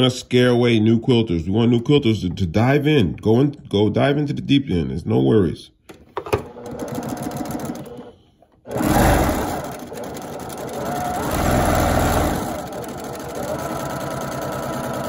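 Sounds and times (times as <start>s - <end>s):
sewing machine stitching: 6.3s - 15.0s.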